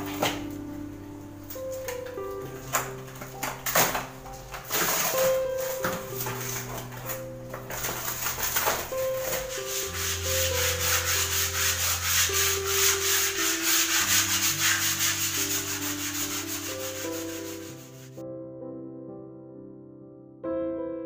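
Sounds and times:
soft background music: 0.0s - 21.0s
sandpaper rubbing on plaster wall: 4.4s - 18.2s.

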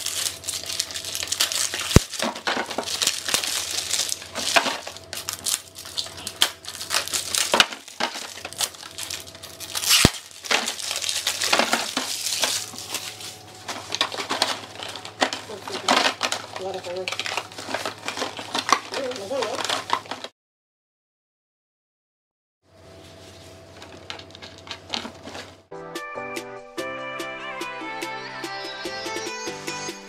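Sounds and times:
packets knocking into plastic basket: 0.0s - 9.2s, 9.8s - 20.3s
packaging crinkling: 0.0s - 20.3s, 23.0s - 25.7s.

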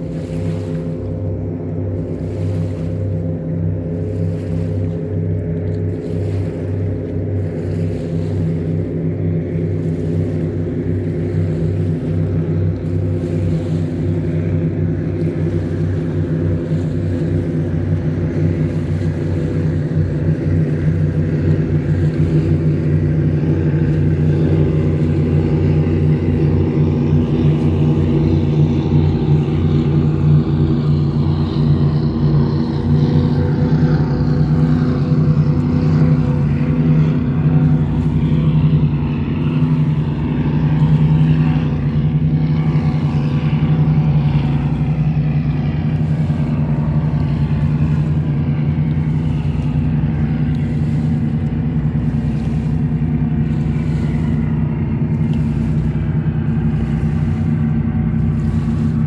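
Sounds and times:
low engine drone: 0.0s - 59.0s.

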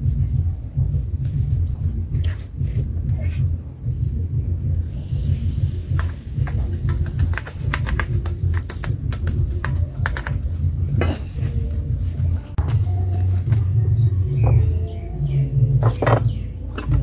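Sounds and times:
steady low rumble: 0.0s - 17.0s
batter clicking and crackling: 5.9s - 10.5s.

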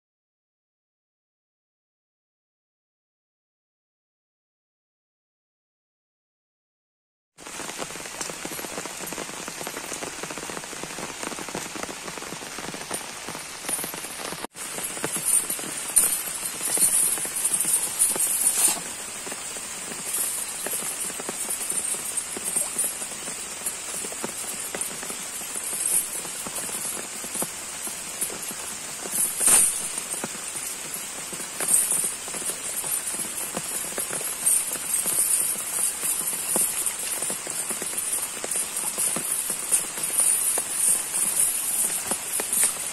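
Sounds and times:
rain on water and leaves: 7.4s - 42.9s.

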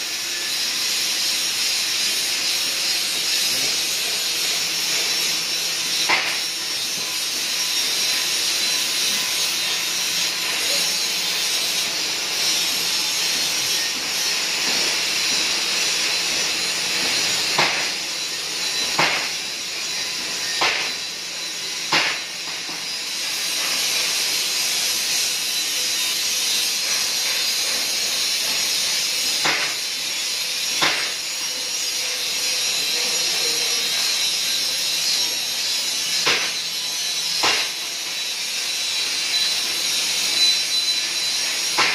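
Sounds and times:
welding arc hissing: 0.0s - 41.9s.

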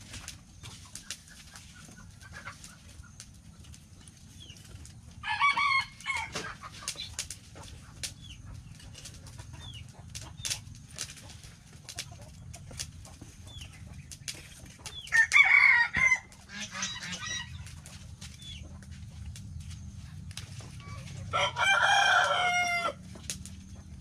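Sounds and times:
chickens clucking: 0.0s - 24.0s
rooster crowing: 5.2s - 6.4s, 15.1s - 17.4s, 20.9s - 23.1s.

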